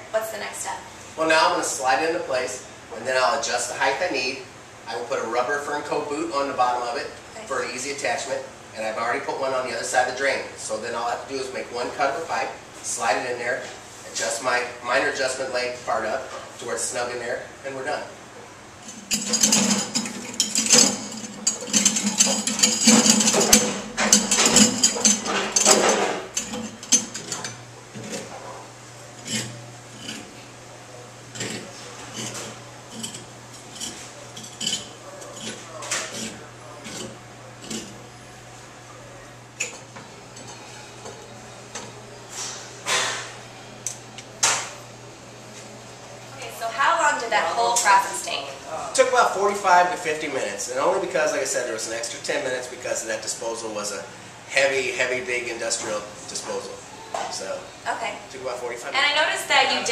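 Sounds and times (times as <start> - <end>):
steady low hum: 0.0 - 59.9
metallic clicking and clattering: 18.8 - 28.3.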